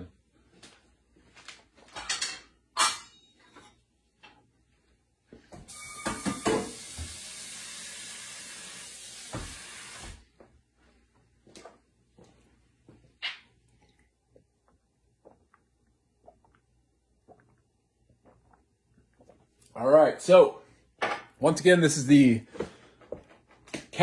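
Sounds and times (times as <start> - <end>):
kitchen tap water running: 5.7 - 10.2.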